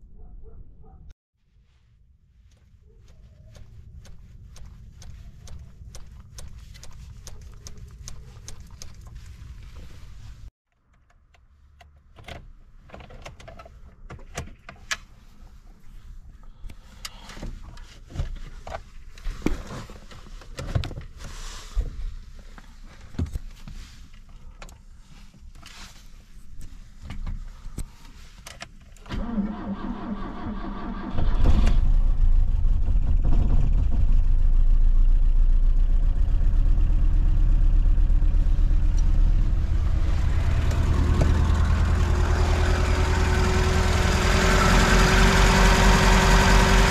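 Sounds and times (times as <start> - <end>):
low rumble: 31.5 - 46.9.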